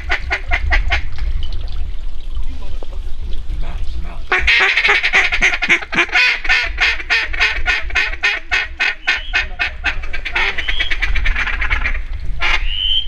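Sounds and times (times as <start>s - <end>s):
duck call rapid chuckle: 4.3s - 12.9s.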